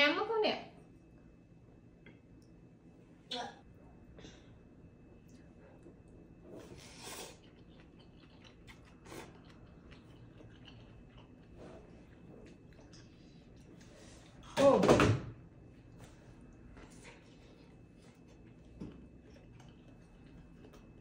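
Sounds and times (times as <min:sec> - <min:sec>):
soft chewing: 0:03.8 - 0:14.5, 0:15.7 - 0:21.0
noodles slurped: 0:06.6 - 0:13.2.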